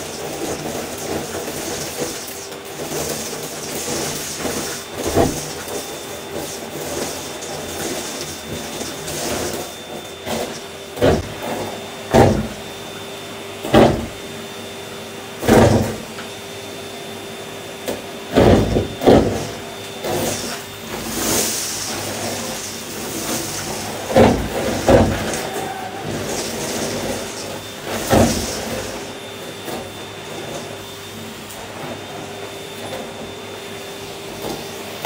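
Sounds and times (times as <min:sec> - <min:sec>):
debris rattling up vacuum hose: 0:00.0 - 0:12.6, 0:18.3 - 0:30.8
vacuum cleaner motor whine: 0:00.0 - 0:35.0.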